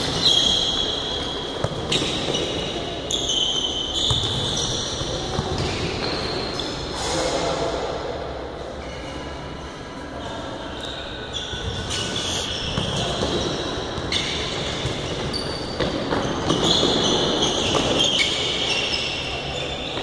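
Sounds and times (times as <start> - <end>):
shoes squeaking on floor: 0.1 - 5.0, 10.8 - 20.0.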